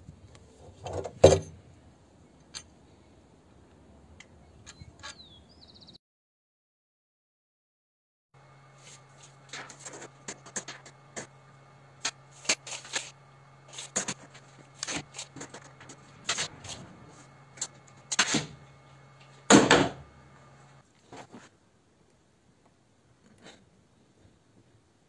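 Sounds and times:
tape measure blade retracting: 12.0s - 16.8s
tape measure clicks and scrapes: 12.0s - 16.8s.

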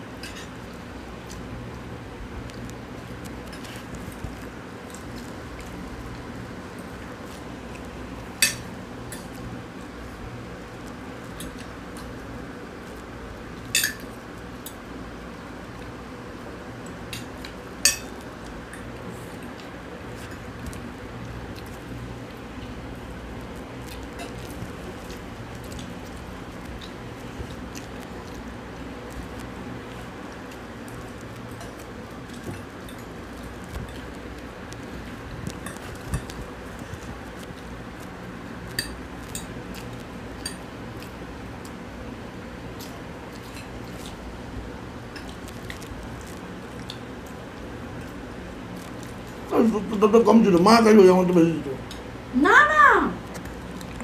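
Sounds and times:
low room noise: 0.0s - 54.0s
cutlery clinking on plates: 17.2s - 18.2s
cutlery clinking on glass plate: 17.8s - 18.1s.

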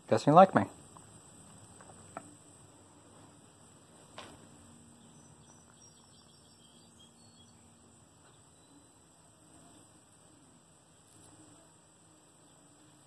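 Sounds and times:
faint high chirps: 4.4s - 13.0s.

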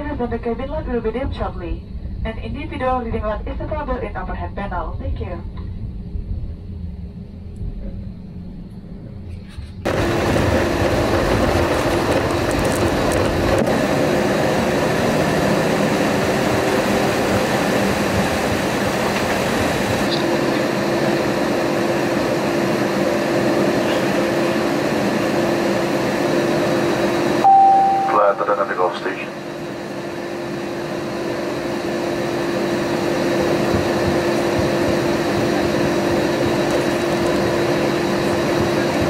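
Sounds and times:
airplane cabin rush and hum: 0.0s - 39.0s
brief single tone: 27.4s - 28.5s.

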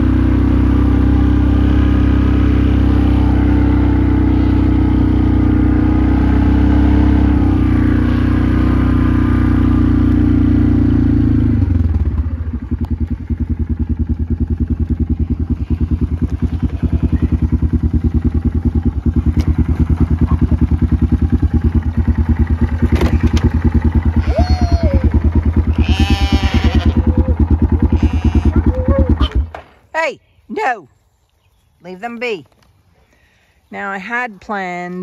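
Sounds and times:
quad bike engine idling: 0.0s - 29.6s.

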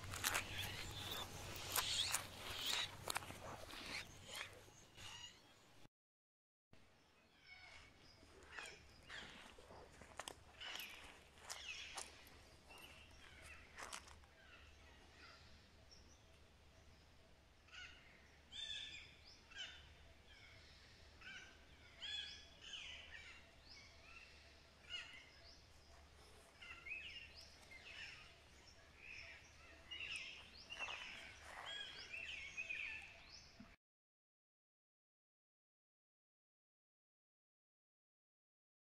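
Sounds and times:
faint bird chirps: 0.0s - 5.8s, 17.1s - 33.8s.

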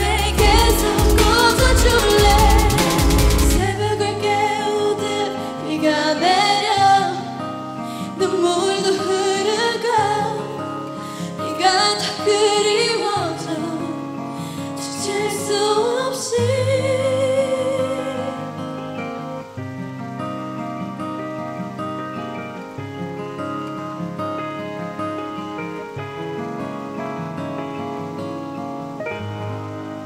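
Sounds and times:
woman singing into a microphone: 0.0s - 18.9s
pop ballad backing track: 0.0s - 30.0s.

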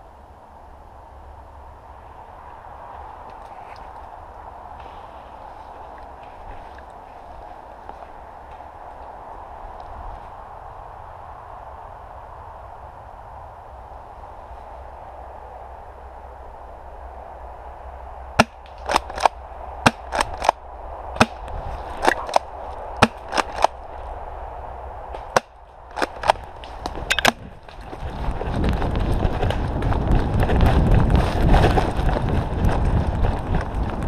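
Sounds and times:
wind on microphone: 1.2s - 34.0s
airsoft guns popping: 18.4s - 20.6s, 21.2s - 23.8s, 25.2s - 27.8s
rustling running footsteps: 25.2s - 34.0s.

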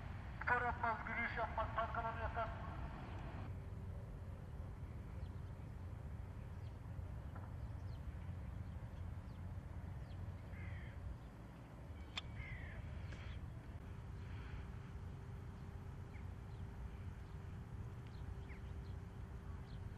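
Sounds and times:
birds chirping: 0.0s - 3.5s, 4.8s - 19.9s
low steady rumble: 0.0s - 19.9s
bird calls falling in pitch: 12.2s - 12.9s.

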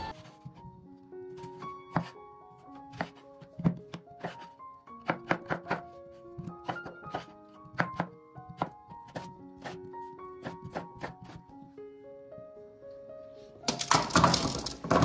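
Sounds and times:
instrumental music: 0.0s - 15.0s
knife chopping on cutting board: 1.5s - 2.1s, 2.9s - 9.8s, 10.4s - 11.4s.

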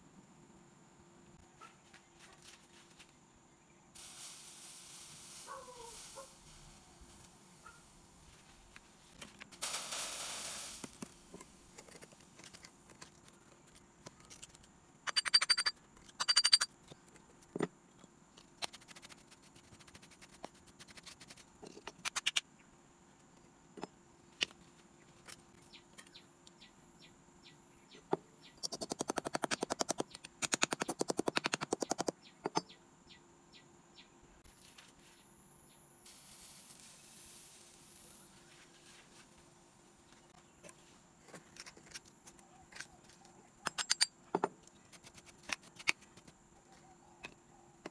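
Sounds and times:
brief hiss: 4.0s - 7.8s, 9.6s - 11.0s.

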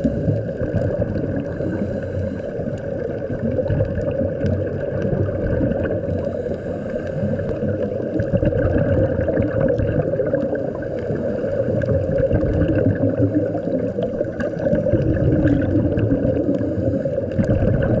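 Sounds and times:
underwater low rushing rumble: 0.0s - 18.0s
faint clicks: 0.4s - 5.1s.

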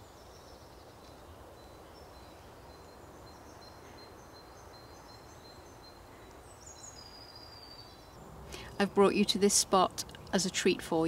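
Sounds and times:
low woodland hiss: 0.0s - 11.0s.

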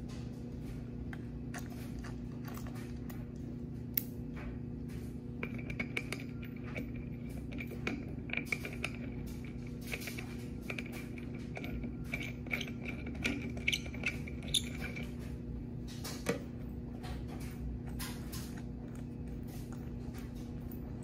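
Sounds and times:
steady electrical hum: 0.0s - 21.0s
metallic fittings clinking: 5.4s - 15.3s.

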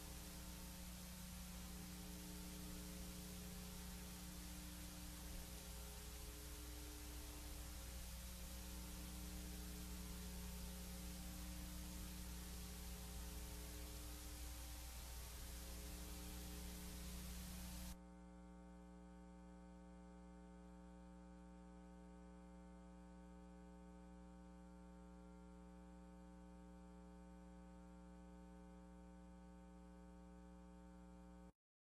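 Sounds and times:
electrical mains hum: 0.0s - 18.0s
hiss: 0.0s - 18.0s.

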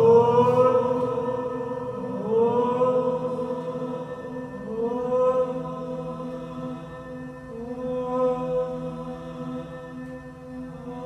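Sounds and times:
voice holding sliding notes: 0.0s - 5.8s
low held vocal tones: 0.0s - 11.0s.

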